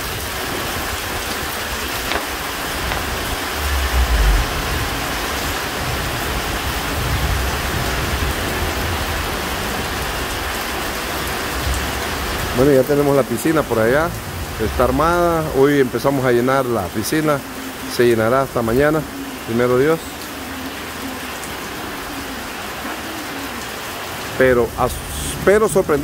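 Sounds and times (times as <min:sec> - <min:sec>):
steady rain falling: 0:00.0 - 0:26.0
low rumbles: 0:00.1 - 0:10.5.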